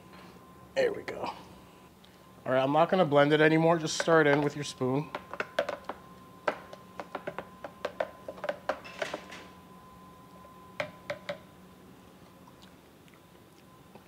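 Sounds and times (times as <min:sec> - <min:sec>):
spoon tapping plastic jar: 0:03.9 - 0:09.2, 0:10.8 - 0:11.4.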